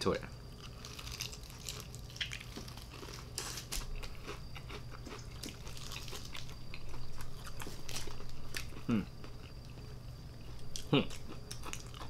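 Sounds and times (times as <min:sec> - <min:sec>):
fried chicken crunching: 0:00.6 - 0:08.9.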